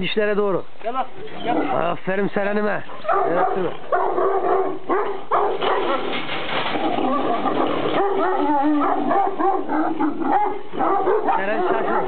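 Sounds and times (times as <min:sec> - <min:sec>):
dogs barking and whining: 0:02.9 - 0:12.0.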